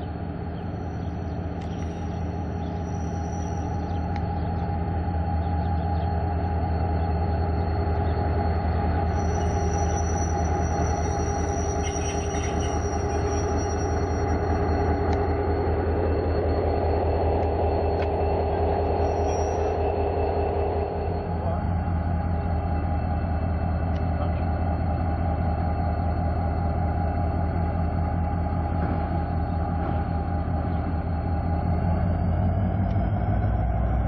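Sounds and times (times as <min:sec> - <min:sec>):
diesel locomotive engine drone: 0:00.0 - 0:34.0
high-pitched squeal: 0:00.6 - 0:24.8.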